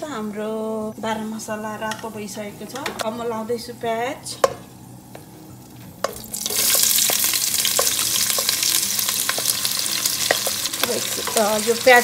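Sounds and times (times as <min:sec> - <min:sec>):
onions sizzling in hot oil: 0:06.0 - 0:12.0.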